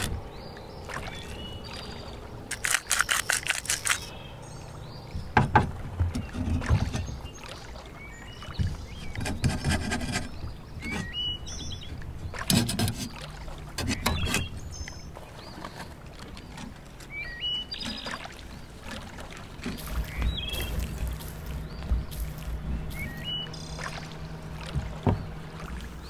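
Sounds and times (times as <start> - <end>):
low outdoor rumble: 0.0 - 9.4, 18.4 - 26.0
small birds chirping: 0.0 - 18.8, 19.6 - 26.0.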